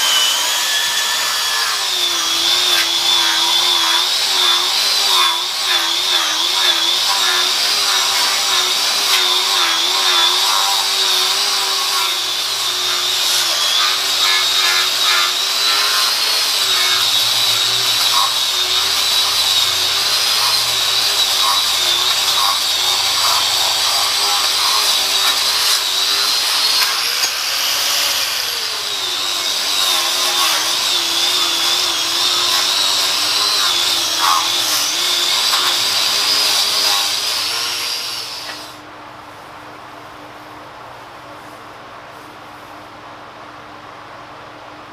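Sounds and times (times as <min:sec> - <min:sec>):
grinder scrubbing rust off metal: 0:00.0 - 0:38.7.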